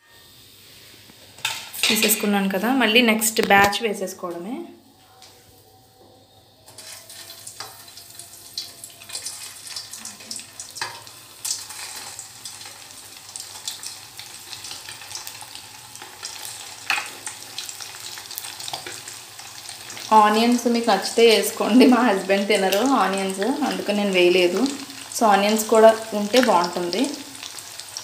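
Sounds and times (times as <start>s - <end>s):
food deep-frying in hot oil: 6.7s - 28.0s.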